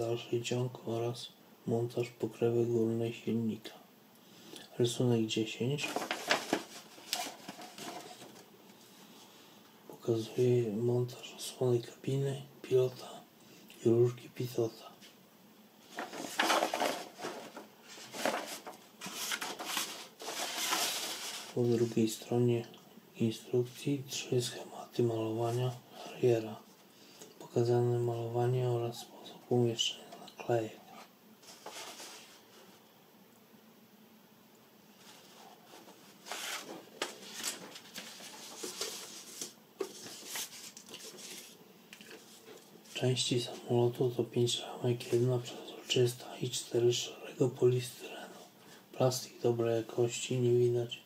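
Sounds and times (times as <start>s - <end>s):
paper rustling: 5.8s - 8.8s, 15.8s - 22.0s, 31.4s - 32.7s, 35.0s - 43.6s.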